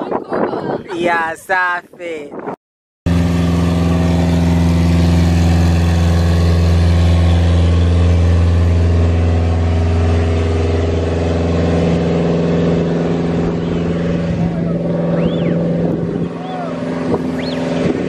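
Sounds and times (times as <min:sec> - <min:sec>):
engine humming steadily: 0:03.1 - 0:18.0.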